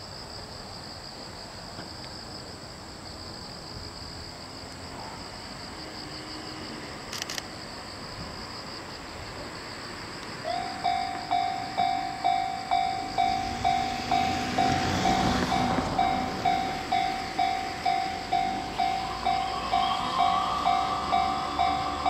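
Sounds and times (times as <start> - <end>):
level crossing warning bell: 10.5 - 22.0.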